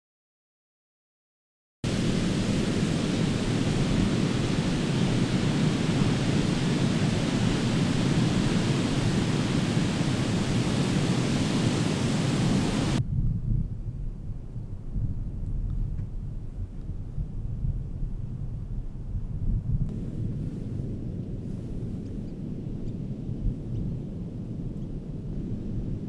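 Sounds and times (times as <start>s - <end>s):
low wind rumble: 1.8s - 26.0s
ocean surf breaking: 1.9s - 13.0s.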